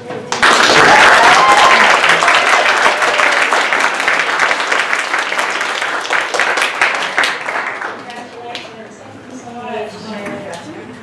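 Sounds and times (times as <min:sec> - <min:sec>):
audience applauding: 0:00.3 - 0:08.1.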